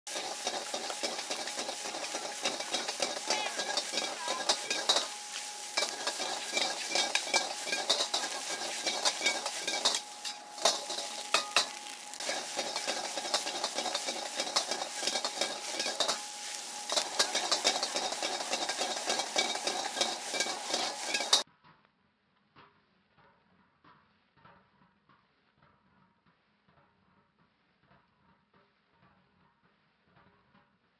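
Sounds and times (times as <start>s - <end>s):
rice sizzling in a wok: 0.0s - 21.5s, 23.5s - 30.8s
metal ladle scraping a wok: 0.1s - 21.4s.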